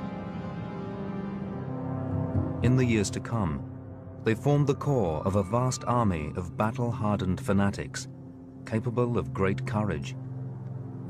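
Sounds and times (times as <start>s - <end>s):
sustained ambient tones: 0.0s - 11.0s.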